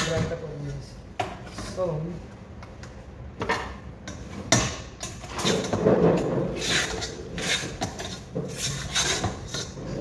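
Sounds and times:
kitchen items scraping and rattling: 3.4s - 10.0s.

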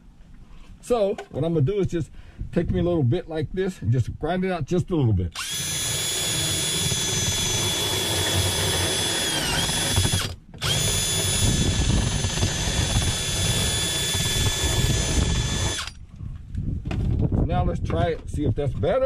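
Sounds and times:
cordless drill grinding fiberglass: 5.4s - 16.0s.

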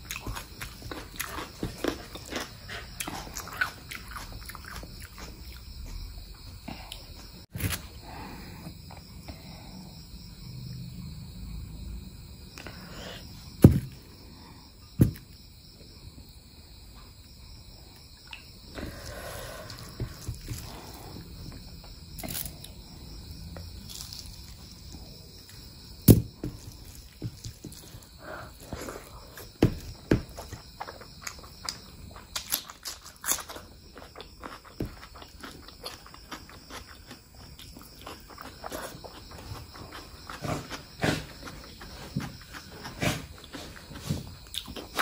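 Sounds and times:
chewing and mouth sounds: 0.0s - 6.0s, 30.5s - 45.0s.

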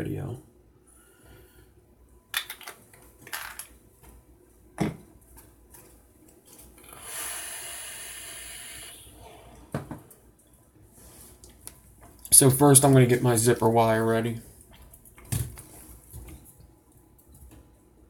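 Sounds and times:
steady hiss: 6.8s - 9.7s.

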